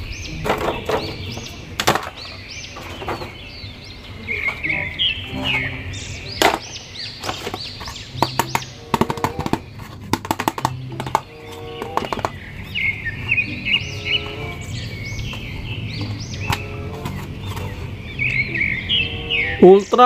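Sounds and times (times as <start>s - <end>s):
high upward-sweeping chirps: 3.7s - 20.0s
background music: 4.6s - 20.0s.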